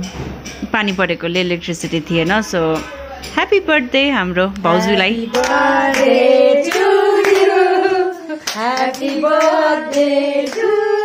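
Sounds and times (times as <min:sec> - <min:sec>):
voices singing birthday song: 0:04.0 - 0:11.0
hands clapping along: 0:05.3 - 0:07.6, 0:08.4 - 0:11.0.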